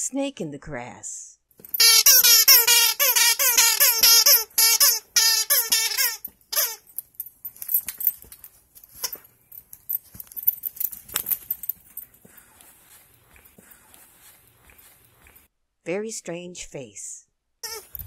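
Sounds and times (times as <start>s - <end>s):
squeaky toy squeaks: 1.7s - 6.9s, 17.6s - 18.0s
rustling on blanket: 10.0s - 15.5s.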